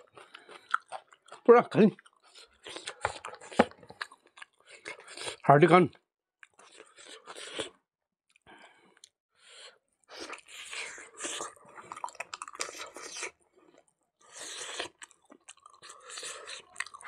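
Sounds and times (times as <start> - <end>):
wet chewing and crunching: 0.0 - 5.5, 6.4 - 17.0.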